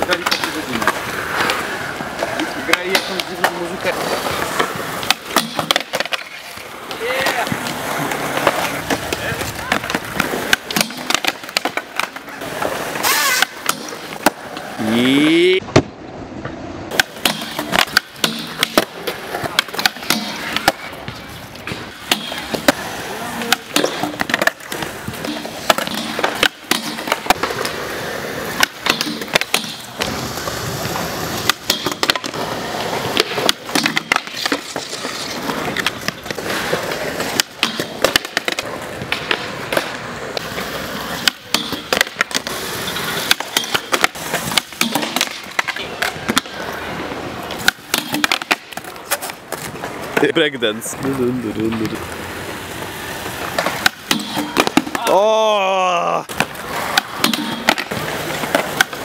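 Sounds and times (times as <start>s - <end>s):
skateboard clacking: 0.0s - 59.0s
skateboard wheels rolling on concrete: 0.0s - 59.0s.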